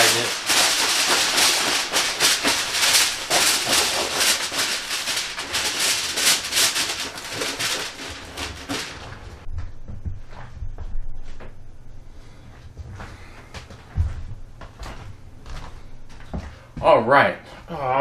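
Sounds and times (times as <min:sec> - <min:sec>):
aluminum foil crinkling: 0:00.0 - 0:09.5.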